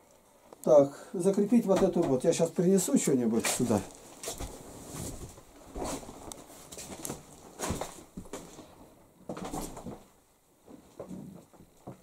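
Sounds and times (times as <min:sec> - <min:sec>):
footsteps in a house: 0:03.4 - 0:10.1.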